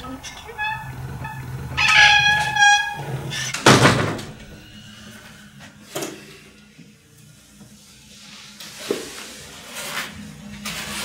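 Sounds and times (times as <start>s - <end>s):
door hinges creaking: 0.2s - 4.6s.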